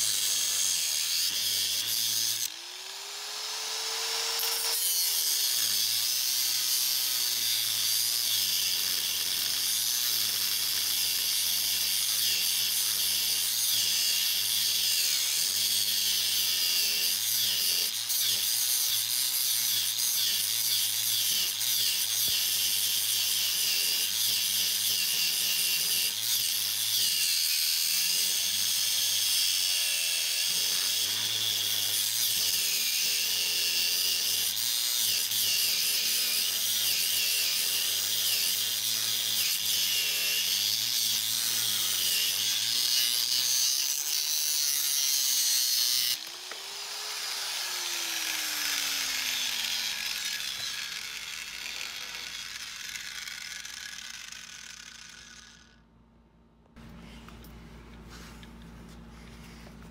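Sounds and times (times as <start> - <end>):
angle grinder cutting metal: 0.0 - 55.8.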